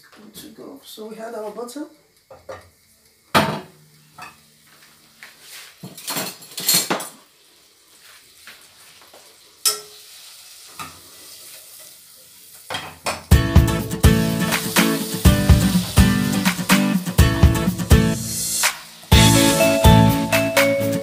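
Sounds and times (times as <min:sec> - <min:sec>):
metal kitchenware clattering: 0:05.9 - 0:07.2.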